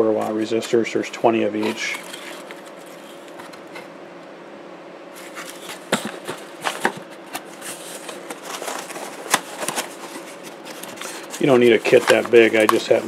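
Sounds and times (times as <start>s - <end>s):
cardboard and paper rustling: 1.5s - 3.9s, 5.2s - 13.0s.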